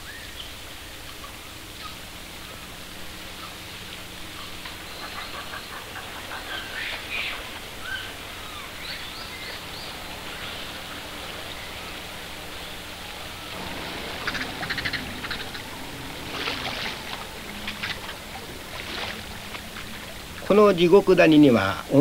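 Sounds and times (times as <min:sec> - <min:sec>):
steady outdoor hiss: 0:00.0 - 0:22.0
high animal calls: 0:13.0 - 0:20.4
rapid chirping: 0:13.5 - 0:20.4.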